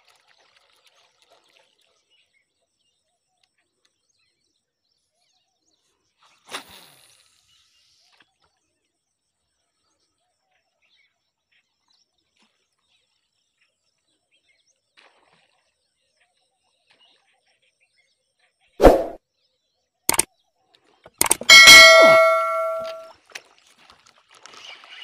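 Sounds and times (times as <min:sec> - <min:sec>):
loud whoosh sound effect: 0:18.8 - 0:19.2.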